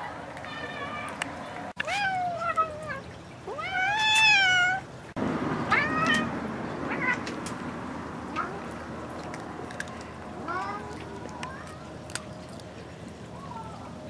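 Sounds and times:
cat meowing: 0:01.8 - 0:04.8.

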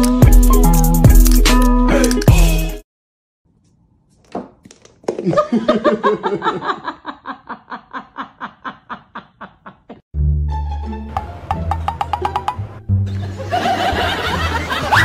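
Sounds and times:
person laughing: 0:05.1 - 0:10.0.

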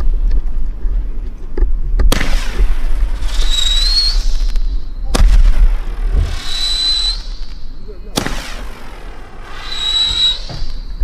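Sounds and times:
firework shots: 0:01.9 - 0:11.0
rising firework whistle: 0:03.0 - 0:11.0.

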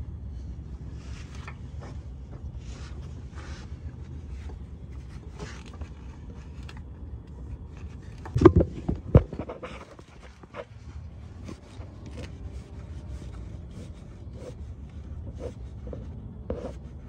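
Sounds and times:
steady low rumble: 0:00.0 - 0:17.0
faint rustles and taps: 0:01.0 - 0:17.0.

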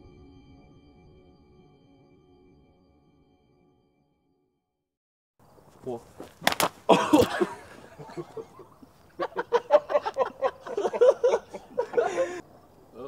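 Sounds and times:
men laughing: 0:05.8 - 0:12.6
sharp knocks: 0:06.2 - 0:07.3
loud shout: 0:06.9 - 0:08.6.

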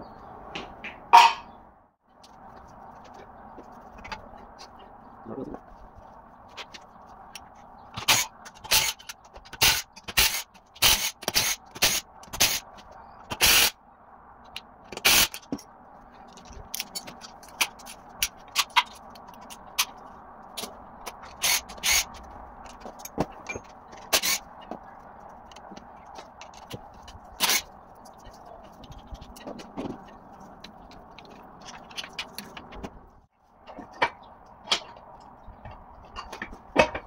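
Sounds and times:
metal tools clanking and scraping: 0:20.6 - 0:24.8, 0:33.7 - 0:37.0.

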